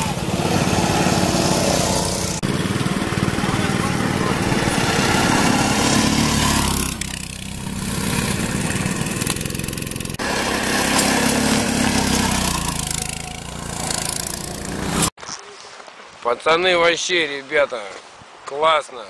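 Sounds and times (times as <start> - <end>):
go-kart engines running: 0.0 - 15.1.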